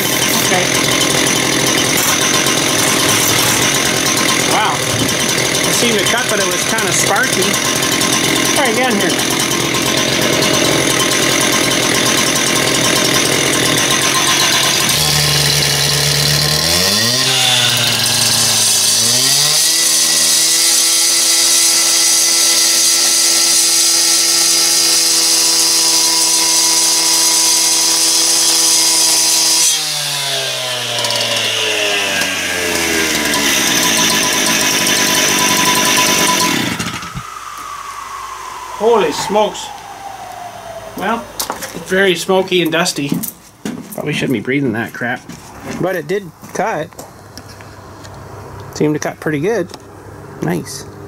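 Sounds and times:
saw blade cutting concrete: 0.0s - 37.3s
concrete saw revving: 0.0s - 43.2s.

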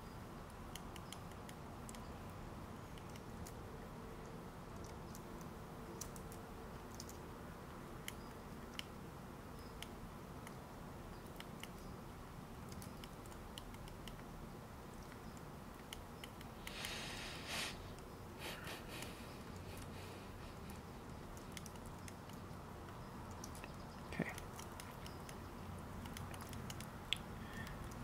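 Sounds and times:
low background noise: 0.0s - 28.0s
keyboard and mouse clicks: 0.5s - 2.1s, 2.9s - 3.6s, 4.2s - 7.2s, 12.6s - 14.3s, 14.9s - 17.0s, 20.7s - 28.0s.

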